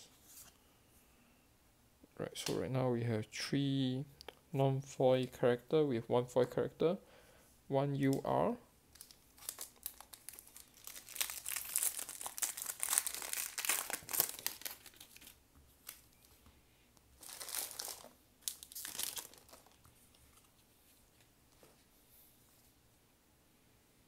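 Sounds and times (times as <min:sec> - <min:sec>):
wrapper crackling as torn open: 0:08.9 - 0:16.2, 0:17.2 - 0:19.8.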